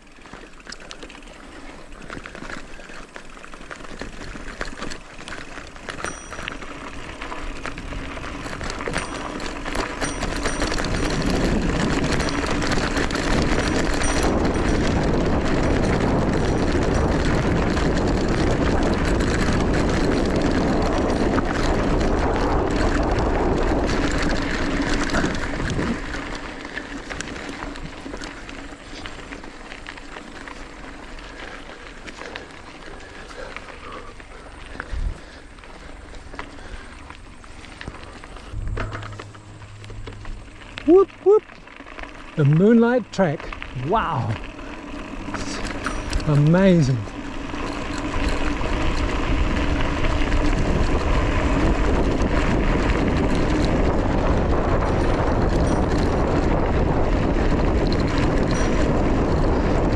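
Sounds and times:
bike tyres crunching on gravel: 0.0 - 59.9
wind rushing over microphone: 10.0 - 26.2, 45.2 - 59.9.

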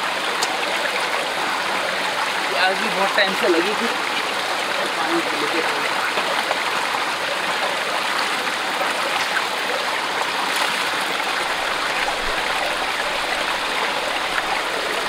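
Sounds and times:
forest stream flowing: 0.0 - 15.0.

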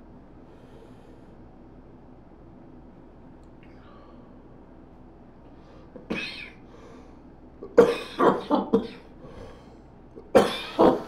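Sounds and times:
man coughing: 7.7 - 9.1, 10.3 - 11.0.

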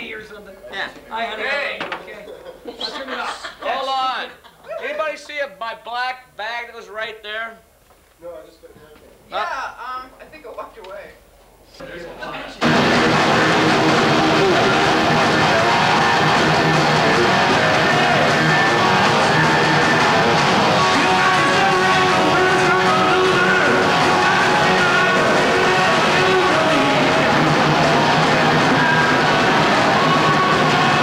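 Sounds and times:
heavy metal band playing live: 12.6 - 31.0.

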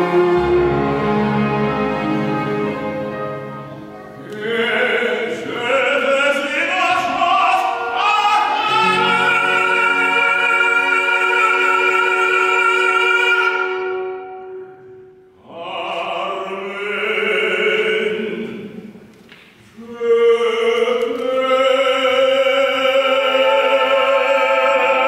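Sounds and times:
orchestra playing: 0.0 - 15.2
man singing operatically: 4.2 - 14.0, 15.4 - 18.8, 19.8 - 25.0.

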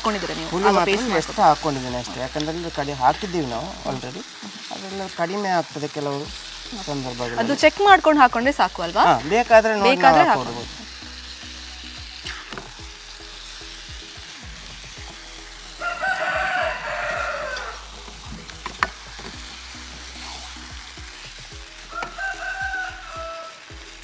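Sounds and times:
chicken sizzling in a pan: 0.0 - 24.0
rooster crowing: 15.8 - 17.9, 21.9 - 23.7.

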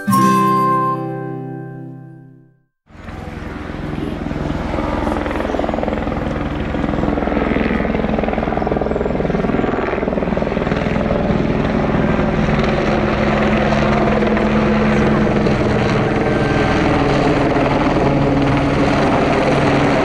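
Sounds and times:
helicopter rotor beating: 2.9 - 20.0.

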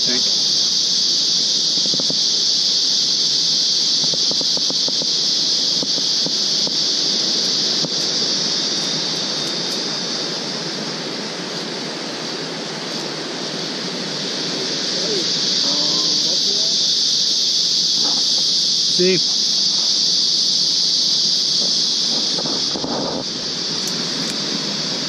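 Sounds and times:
insect chorus drone: 0.0 - 25.0.

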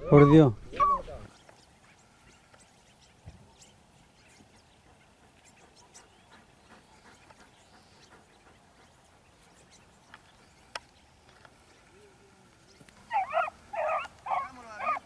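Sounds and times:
hounds baying: 13.0 - 15.0.

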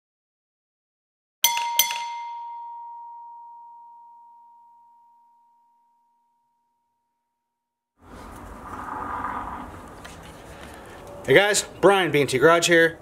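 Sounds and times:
clear ringing tone: 1.4 - 7.7.

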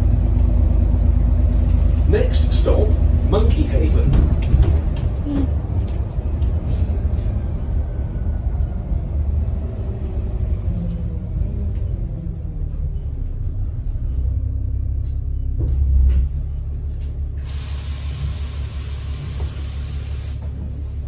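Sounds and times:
bus engine and road rumble: 0.0 - 21.0.

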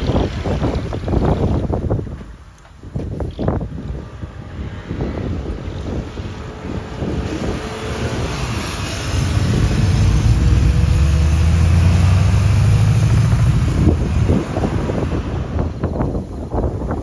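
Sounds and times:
wind buffeting microphone: 0.0 - 17.0
truck diesel engine running: 5.3 - 16.7.

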